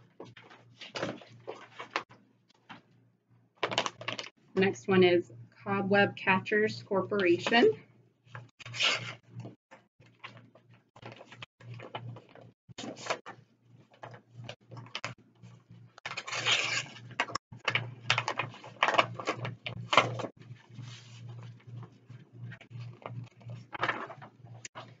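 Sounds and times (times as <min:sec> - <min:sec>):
paper rustling and crinkling: 0:00.1 - 0:02.8, 0:03.6 - 0:04.3, 0:10.1 - 0:15.1, 0:16.1 - 0:25.0.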